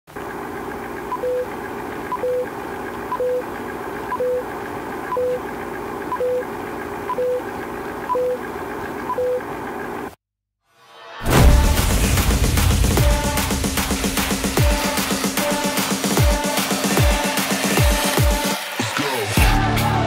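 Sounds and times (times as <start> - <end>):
whirring hum with crackle: 0.1 - 10.2.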